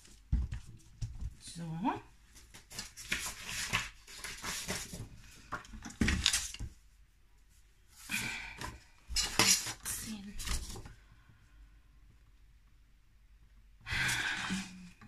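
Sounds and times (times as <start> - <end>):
paper rustling and sliding: 2.6 - 6.7.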